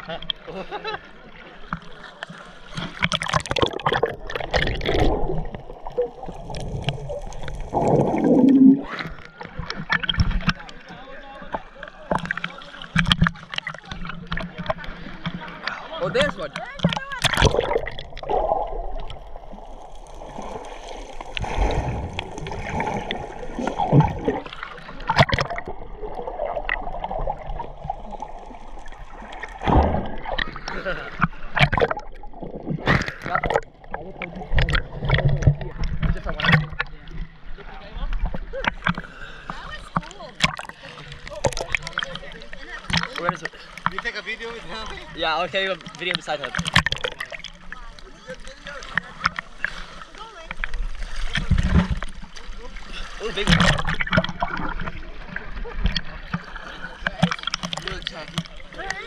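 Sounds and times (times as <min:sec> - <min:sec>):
seawater splashing and sloshing: 0:00.0 - 0:59.0
muffled underwater gurgling rumble: 0:03.0 - 0:10.8, 0:16.8 - 0:43.7.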